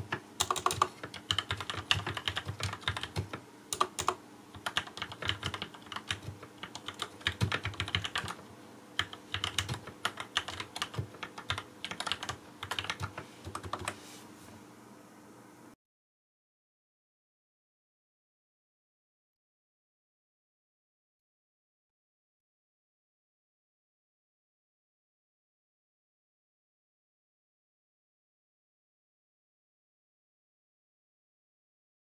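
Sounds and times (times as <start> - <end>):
mechanical keyboard typing: 0.0 - 8.4, 9.0 - 14.0.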